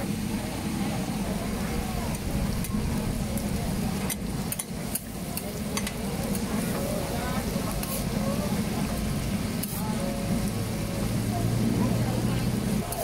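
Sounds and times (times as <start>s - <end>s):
murmur of voices: 0.0s - 13.0s
low hum: 0.8s - 5.3s.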